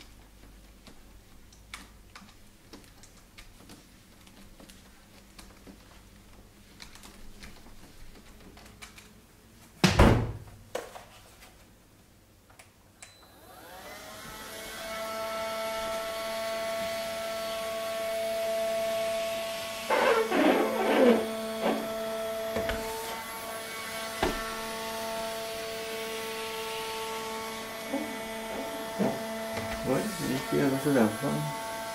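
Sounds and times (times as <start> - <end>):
vacuum suction motor whine: 13.2 - 31.9
squeegee squeaking on wet glass: 19.9 - 22.0.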